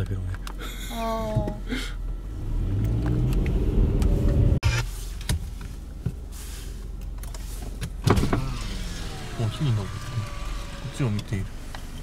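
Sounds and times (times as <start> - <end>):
steady engine hum: 0.0 - 12.0
car engine accelerating: 0.3 - 4.8, 8.0 - 12.0.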